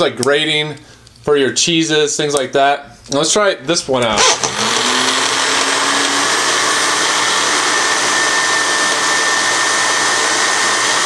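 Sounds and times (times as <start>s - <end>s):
blender motor whirring: 4.2s - 11.0s.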